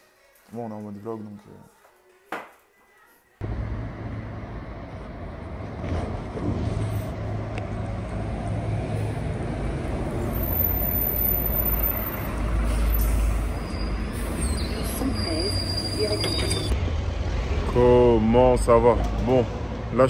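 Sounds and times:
bus engine rumbling: 3.4 - 20.0
street traffic noise: 3.4 - 20.0
thin high squeal: 10.5 - 16.7.

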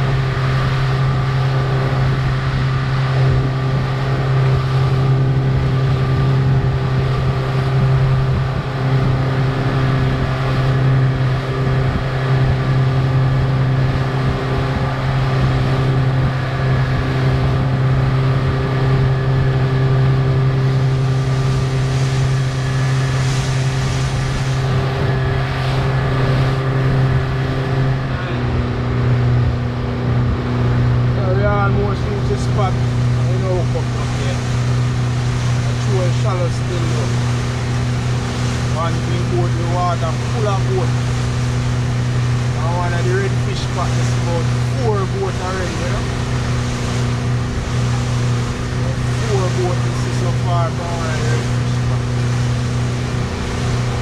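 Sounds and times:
boat engine droning: 0.0 - 54.0.

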